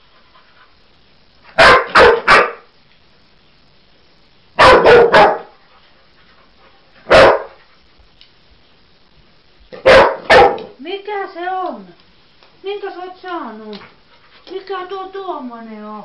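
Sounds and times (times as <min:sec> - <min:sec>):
dog barking: 0:01.6 - 0:02.7, 0:04.6 - 0:05.5, 0:07.0 - 0:07.6, 0:09.8 - 0:10.8.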